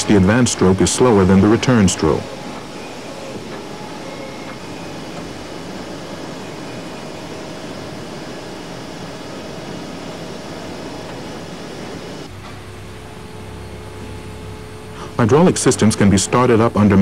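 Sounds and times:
sawing machine running: 0.0 - 12.4.

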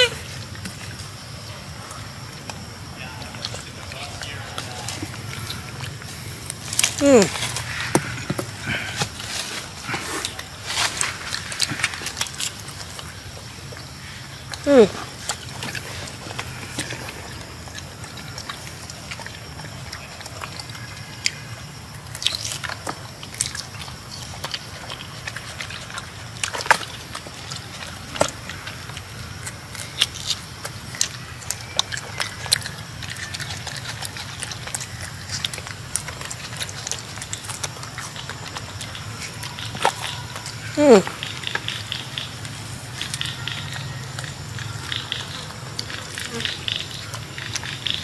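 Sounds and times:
monkey chewing fruit: 0.0 - 48.0
wet smacks and mouth clicks: 22.0 - 48.0.

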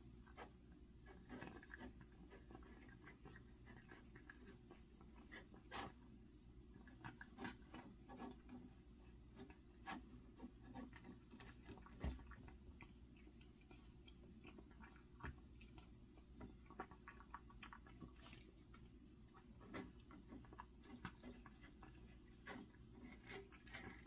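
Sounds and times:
cat eating clicks and smacks: 6.5 - 24.0.

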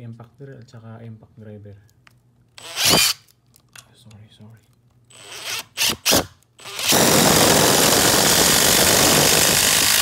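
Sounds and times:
impact driver trigger bursts: 2.6 - 3.2, 5.1 - 10.0
impact driver hammering: 2.7 - 3.2.

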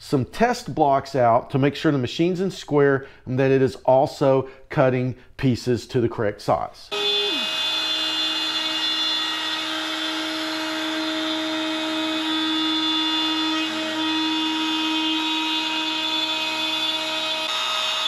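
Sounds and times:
router bit cutting wood: 6.9 - 18.0
router motor whine: 6.9 - 18.0.

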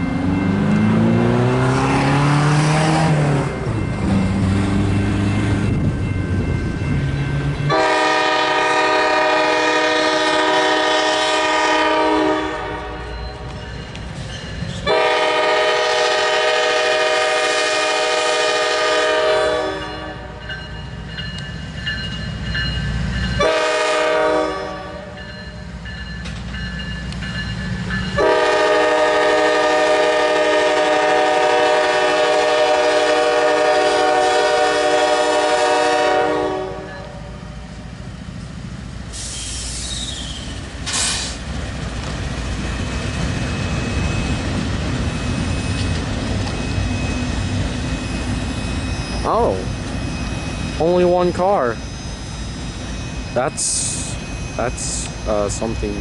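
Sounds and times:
diesel engines rumbling: 0.0 - 56.0
locomotive air horn blasts: 7.7 - 13.1, 14.8 - 20.3, 23.4 - 25.2, 28.2 - 37.4.

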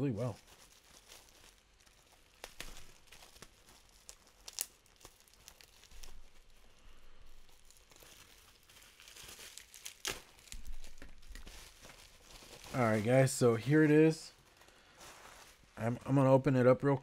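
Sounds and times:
wrapping crinkling and tearing: 0.0 - 16.1.

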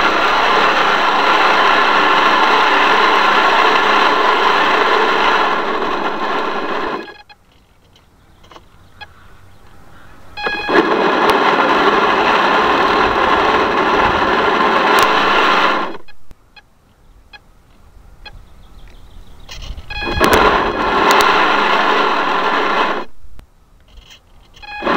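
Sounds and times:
water rushing: 0.0 - 7.1, 20.0 - 23.1
small boat motor whirring: 0.0 - 9.6, 10.3 - 16.2, 18.2 - 23.2, 23.9 - 24.9.

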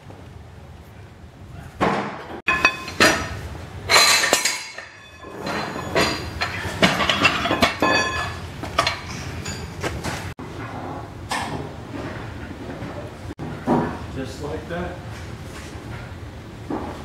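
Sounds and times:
metal jack clanking: 2.5 - 9.8.

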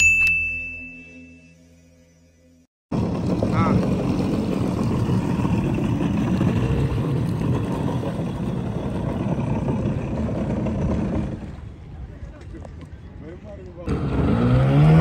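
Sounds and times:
jet ski engine running: 2.9 - 11.9.

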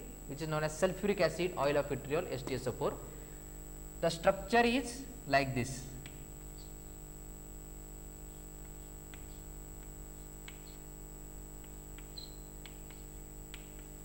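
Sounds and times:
steady background hum: 0.0 - 14.0
chalk tapping on blackboard: 8.3 - 10.9, 11.6 - 14.0.

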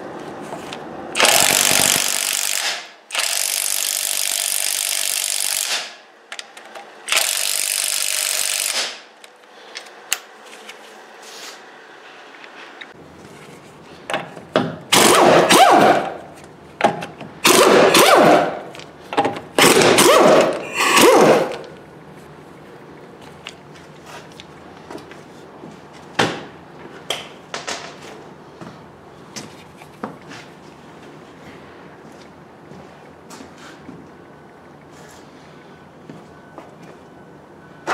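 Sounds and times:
impact wrench bursts: 1.2 - 6.0, 7.1 - 9.1, 14.9 - 16.2, 17.4 - 18.7, 19.6 - 21.7.

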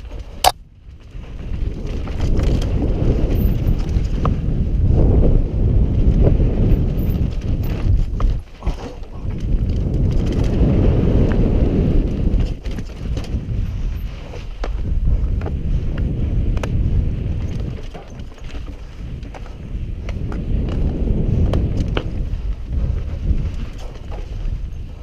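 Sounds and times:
bike rattling over bumps: 0.0 - 25.0
bike tyres rumbling on dirt: 0.0 - 25.0
wind rushing over microphone: 0.0 - 25.0.

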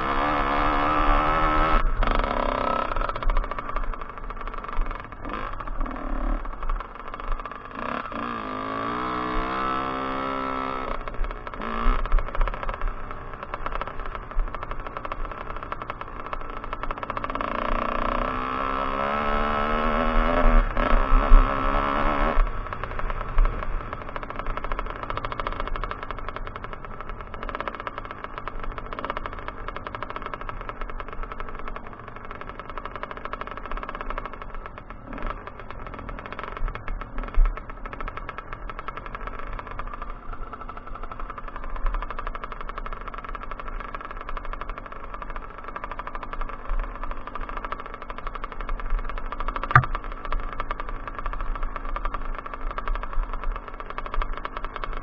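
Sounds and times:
motocross bike engine revving: 0.0 - 31.1, 32.1 - 36.6, 49.2 - 51.3
sharp knock: 49.7 - 50.0.

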